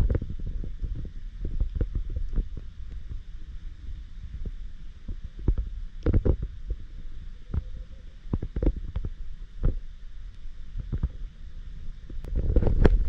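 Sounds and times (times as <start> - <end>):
underwater clicks and knocks: 0.0 - 3.2, 4.4 - 6.8, 7.5 - 9.8, 10.8 - 11.2, 12.1 - 13.0
underwater rumble of moving water: 0.0 - 13.0.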